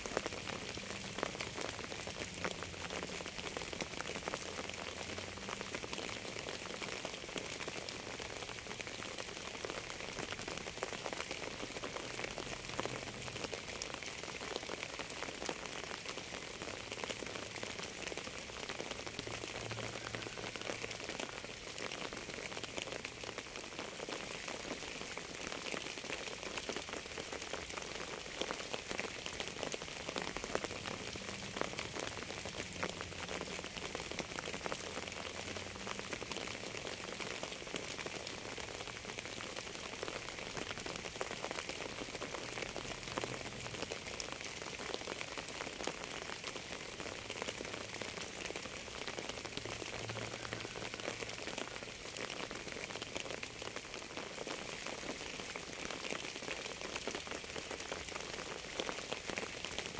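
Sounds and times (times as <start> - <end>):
rain falling: 0.0 - 59.9.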